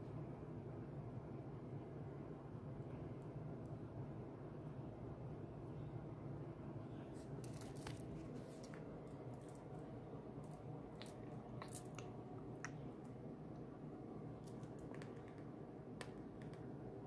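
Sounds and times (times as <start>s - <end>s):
steady low hum: 0.0s - 17.0s
handling clicks and taps: 14.5s - 16.7s.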